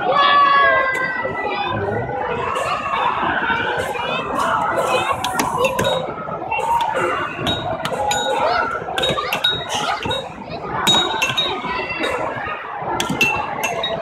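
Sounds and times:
children's voices chattering: 0:00.0 - 0:14.0
high-pitched clinks and pings: 0:07.0 - 0:12.2, 0:13.0 - 0:14.0.

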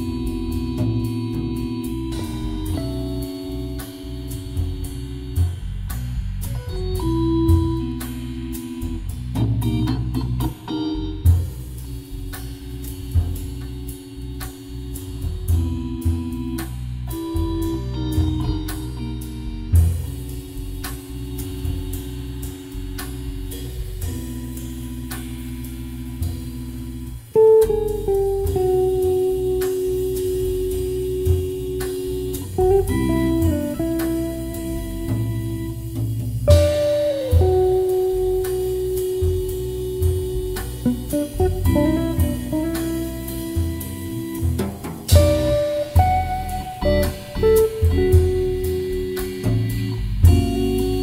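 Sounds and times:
guitar melody with bends: 0:00.0 - 0:05.6, 0:06.4 - 0:51.0
organ chords: 0:00.0 - 0:51.0
cymbal strokes: 0:18.7 - 0:51.0.

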